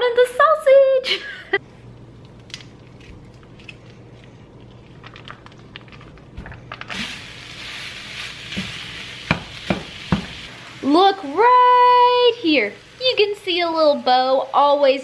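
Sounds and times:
plastic wrapper crinkling: 2.3s - 8.4s
sausage sizzling in pan: 6.8s - 15.0s.

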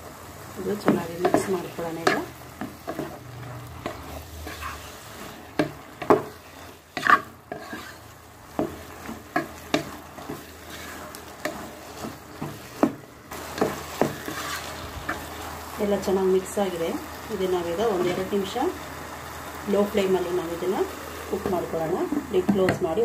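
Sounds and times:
vegetables sizzling: 0.0s - 23.0s
spatula scraping a pan: 0.7s - 15.6s.

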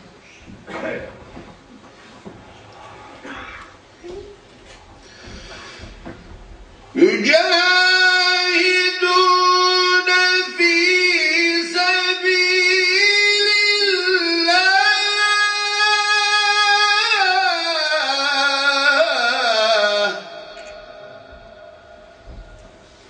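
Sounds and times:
man chanting into a microphone: 6.9s - 22.6s.

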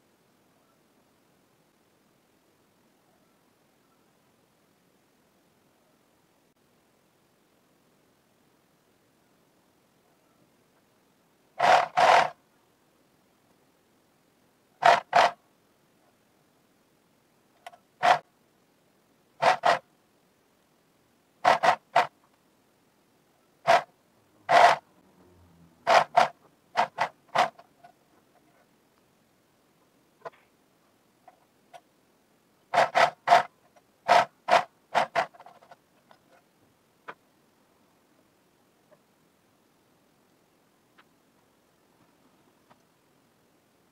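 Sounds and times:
sewing machine stitching: 11.6s - 12.4s, 21.4s - 22.1s, 32.7s - 33.5s
faint ticks: 40.9s - 41.2s.

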